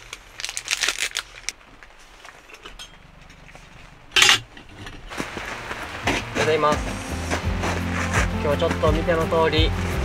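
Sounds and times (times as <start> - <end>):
plastic packet crinkling: 0.0 - 2.4.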